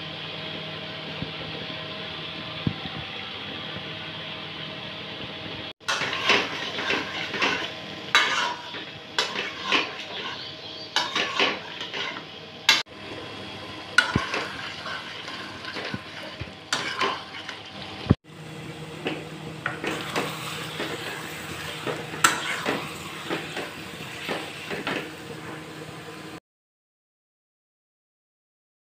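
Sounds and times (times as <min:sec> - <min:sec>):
spatula knocking and scraping pan: 0:05.8 - 0:12.8, 0:14.0 - 0:17.7, 0:19.0 - 0:25.6
food sizzling in a pan: 0:05.8 - 0:18.2, 0:19.0 - 0:26.4.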